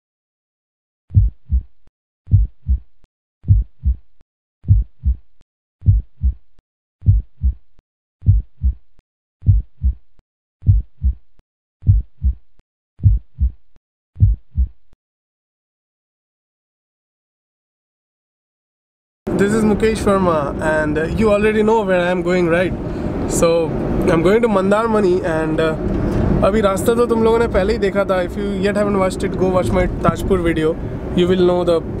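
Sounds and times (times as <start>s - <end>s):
heartbeat thumps: 1.1s - 13.6s, 14.2s - 14.9s.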